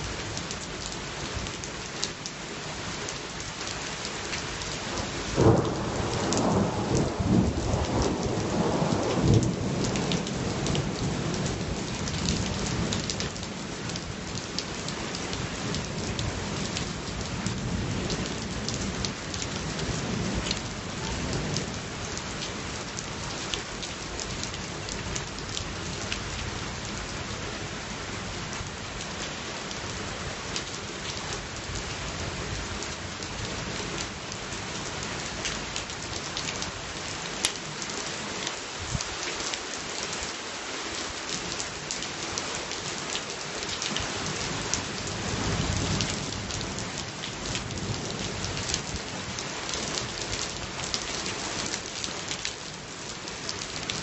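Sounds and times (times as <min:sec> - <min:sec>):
raindrops hitting close: 0:00.0 - 0:54.0
steady rain: 0:00.0 - 0:54.0
low rumble of thunder: 0:05.0 - 0:13.2.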